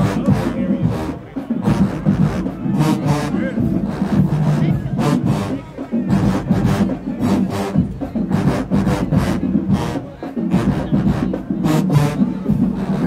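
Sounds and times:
brass playing heavy low notes: 0.0 - 13.0
drumline strikes: 0.0 - 13.0.

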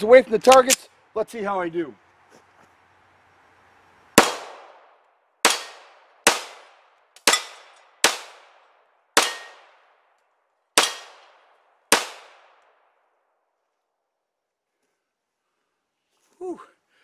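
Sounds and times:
pistol shots with echo: 4.2 - 4.8, 5.4 - 8.6, 9.2 - 9.9, 10.8 - 12.6.

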